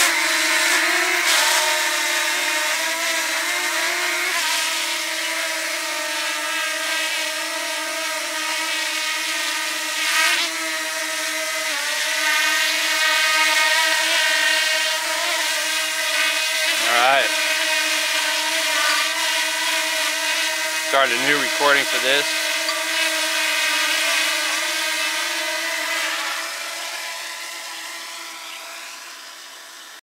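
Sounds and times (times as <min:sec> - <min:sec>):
drone propellers whining: 0:26.3 - 0:30.0.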